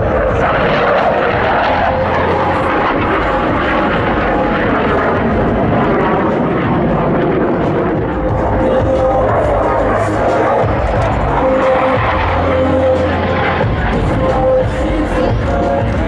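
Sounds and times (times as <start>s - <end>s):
jet engine rushing: 0.0s - 16.0s.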